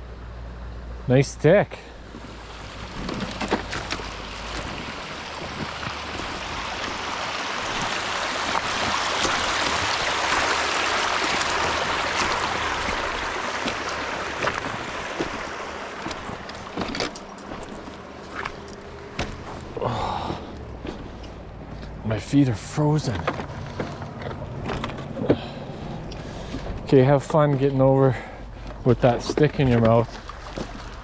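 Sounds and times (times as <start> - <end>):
water running over stones: 2.1 - 21.0, 28.9 - 31.0
footsteps on loose cobbles: 2.9 - 7.0, 11.2 - 22.0, 23.0 - 25.5.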